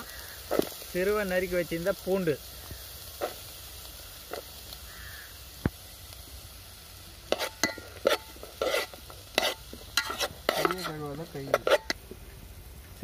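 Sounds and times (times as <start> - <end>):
oil sizzling: 0.0 - 13.0
spoon scraping metal pot: 7.3 - 12.0.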